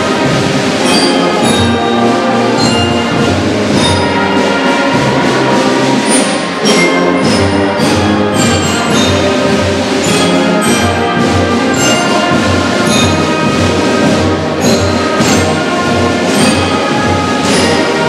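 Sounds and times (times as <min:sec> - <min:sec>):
school band playing: 0:00.0 - 0:18.0
steady drum beat: 0:00.0 - 0:18.0.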